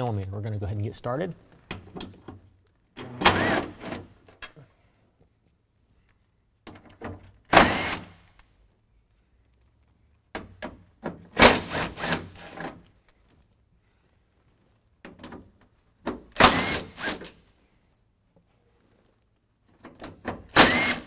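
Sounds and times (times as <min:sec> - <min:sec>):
cordless drill spinning: 0:03.3 - 0:04.0, 0:07.6 - 0:08.1, 0:11.5 - 0:12.6, 0:16.3 - 0:17.3, 0:20.5 - 0:21.0.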